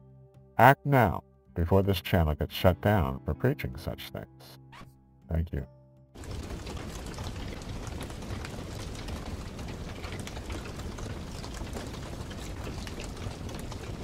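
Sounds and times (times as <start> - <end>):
log fire crackling: 6.2 - 14.0.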